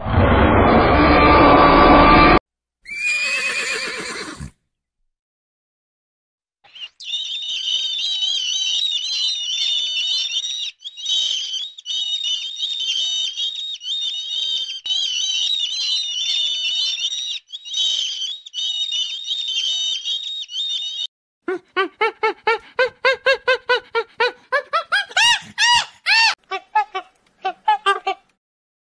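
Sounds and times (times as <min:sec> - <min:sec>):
flock of birds chirping: 0:06.7 - 0:21.1.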